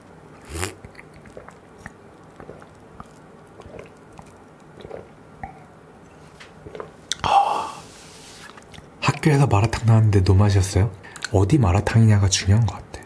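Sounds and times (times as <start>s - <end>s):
wet mouth clicks: 0.4s - 5.6s, 6.6s - 7.3s, 11.1s - 11.4s
person sipping: 0.4s - 8.8s.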